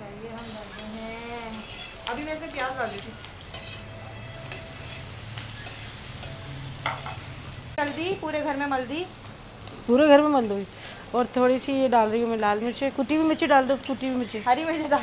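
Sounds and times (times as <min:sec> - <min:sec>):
vegetables sizzling in oil: 0:00.0 - 0:15.0
stirring scrapes and clicks: 0:00.4 - 0:03.9.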